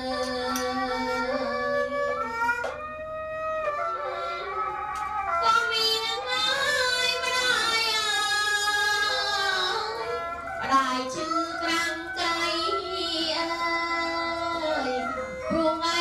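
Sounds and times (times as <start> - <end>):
woman singing: 0.0 - 2.1, 5.4 - 16.0.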